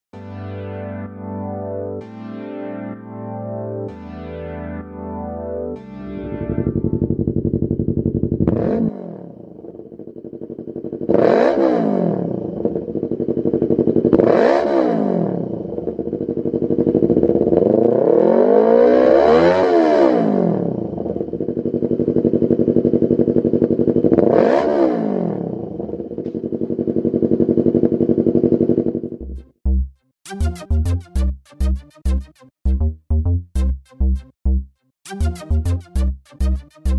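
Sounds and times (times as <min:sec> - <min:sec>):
motorcycle engine idling and revving: 0:06.3 - 0:29.5.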